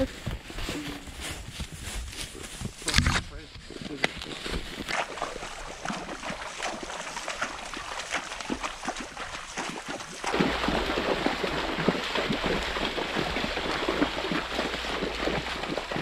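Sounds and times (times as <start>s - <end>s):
hooves splashing in water: 0.0s - 16.0s
river water running over stones: 4.0s - 16.0s.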